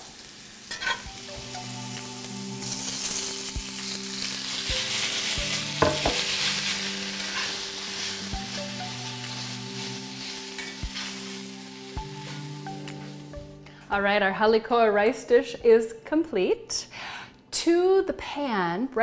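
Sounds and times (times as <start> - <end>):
vegetables sizzling in oil: 0.0 - 13.6.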